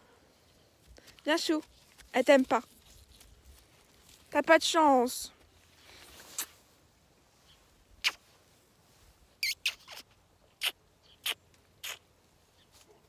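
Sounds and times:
person making squeaky kisses: 6.3 - 6.6, 8.0 - 8.2, 9.4 - 12.1.

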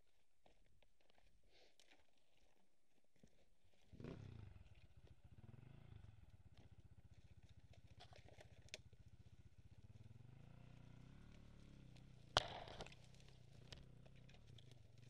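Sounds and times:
dirt bike engine idling: 3.9 - 15.0.

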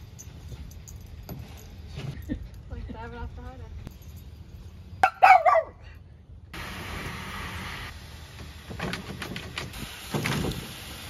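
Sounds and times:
hose water hissing into pool: 6.6 - 11.0.

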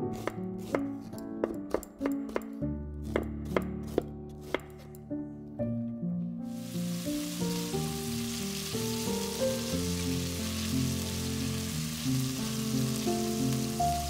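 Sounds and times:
light background music: 0.0 - 14.0
beef searing in hot oil: 6.5 - 14.0.

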